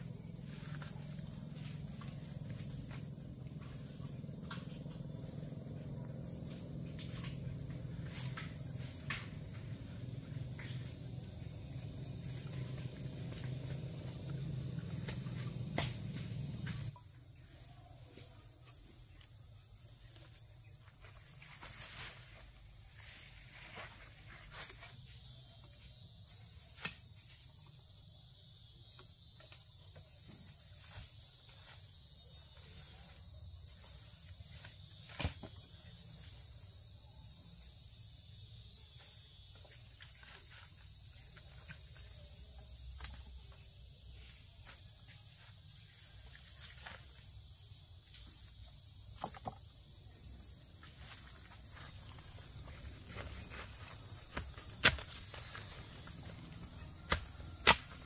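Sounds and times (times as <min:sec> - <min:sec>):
low hum: 0:00.0 - 0:16.9
high-pitched insect chorus: 0:00.0 - 0:58.0.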